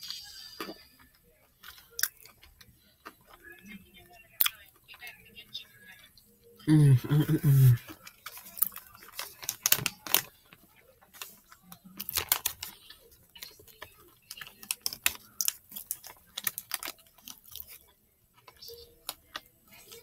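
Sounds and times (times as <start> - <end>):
wrapper crinkling: 7.1 - 20.0.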